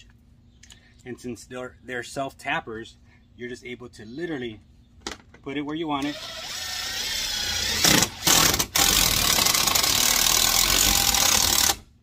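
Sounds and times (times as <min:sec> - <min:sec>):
impact driver driving screw: 0:06.1 - 0:11.8.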